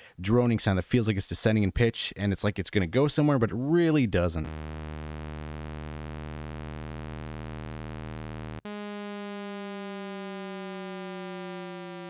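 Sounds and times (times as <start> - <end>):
descending synthesizer drone: 4.3 - 12.0.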